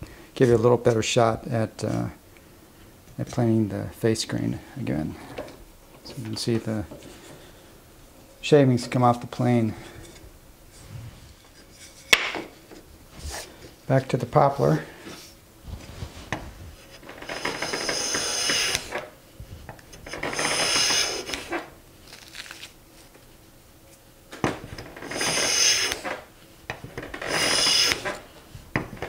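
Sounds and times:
hand plane shaving wood: 17.2s - 19.1s, 20.2s - 21.7s, 25.0s - 26.2s, 27.1s - 28.2s.

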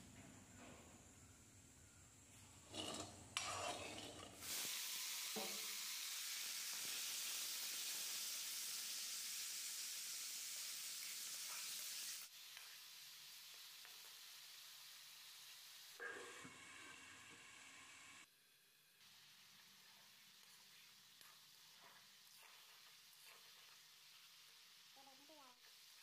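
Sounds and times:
metal spatula stirring: 2.6s - 4.5s, 19.8s - 24.3s
chicken sizzling in hot oil: 4.3s - 26.0s.

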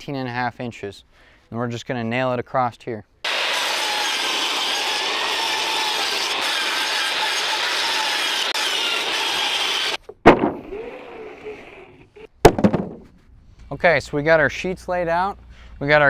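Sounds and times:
table saw cutting board: 3.3s - 12.3s
loud knock: 10.2s - 10.7s, 12.4s - 13.1s.

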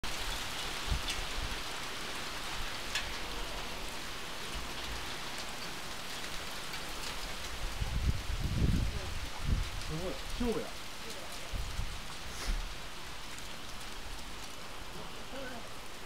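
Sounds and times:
hail and rain pelting: 0.0s - 16.0s
sharp hail ticks: 2.3s - 3.6s, 4.4s - 8.0s.

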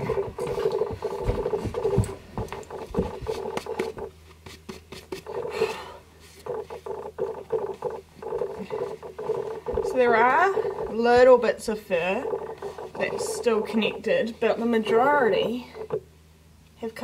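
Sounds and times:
scuffles and knocks: 0.0s - 5.3s
fingernails scraping cloth: 6.3s - 11.3s.

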